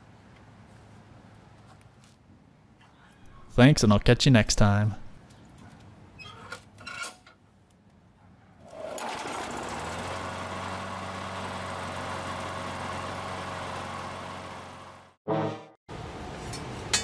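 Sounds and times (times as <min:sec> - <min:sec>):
mower engine starting and running: 0:08.6 - 0:15.2.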